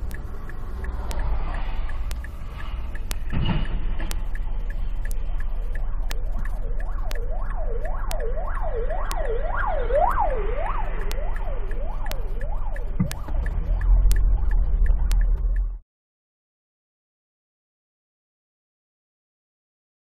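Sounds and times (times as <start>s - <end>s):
engine and road rumble: 0.0s - 15.8s
emergency vehicle siren wailing: 2.5s - 15.8s.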